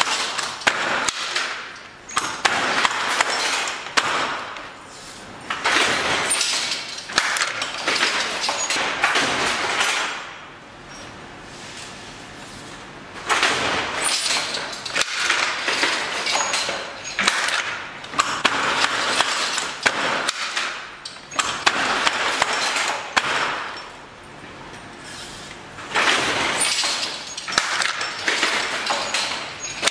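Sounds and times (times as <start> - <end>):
loom clattering and knocking: 0.0 - 4.8, 5.5 - 10.3, 13.2 - 29.9.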